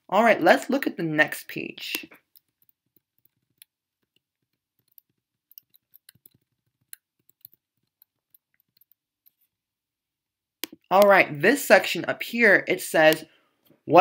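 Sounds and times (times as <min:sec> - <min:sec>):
computer mouse clicks: 0:02.0 - 0:09.4.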